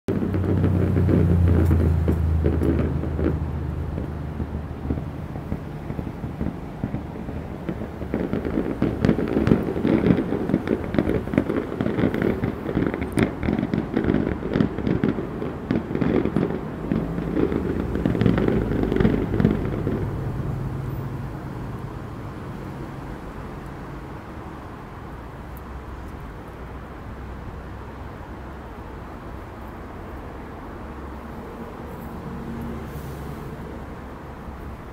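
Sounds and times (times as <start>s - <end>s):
fireworks crackling and banging: 0.1s - 34.9s.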